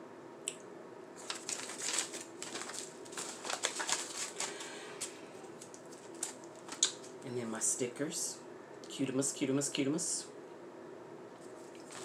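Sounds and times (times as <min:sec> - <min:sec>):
paper crinkling and rustling: 0:01.2 - 0:07.2, 0:11.4 - 0:12.0.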